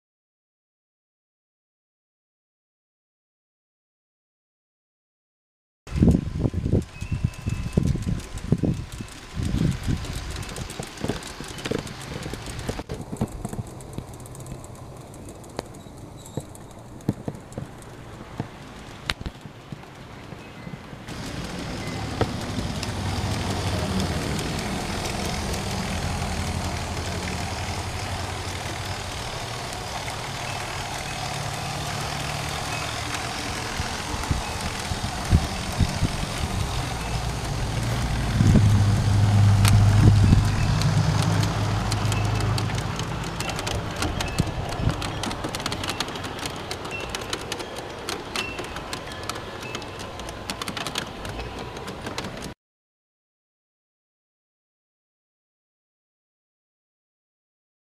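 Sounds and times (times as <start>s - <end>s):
model locomotive electric drive humming: 5.9s - 18.9s, 21.1s - 52.3s
sharp clicks: 6.1s - 20.0s, 21.1s - 38.8s, 39.5s - 52.6s.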